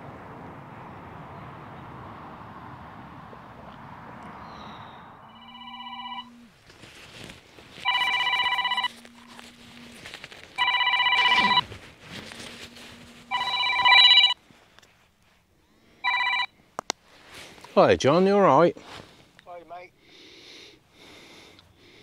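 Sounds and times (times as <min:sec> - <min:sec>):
mobile phone ringtone: 0:05.3 - 0:06.4, 0:07.8 - 0:09.0, 0:10.6 - 0:11.6, 0:13.3 - 0:14.4, 0:16.0 - 0:16.5.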